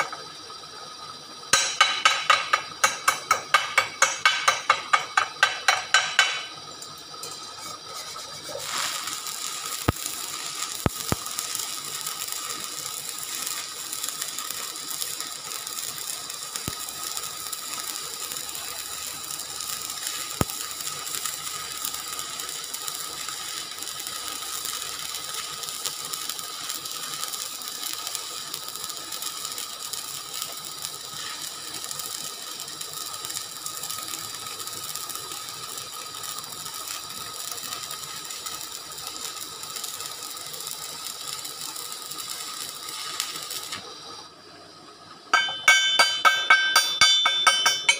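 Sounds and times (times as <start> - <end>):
welding arc crackling: 0.0 - 44.3, 45.3 - 47.9
hammer striking steel: 1.5 - 7.4, 45.3 - 47.9.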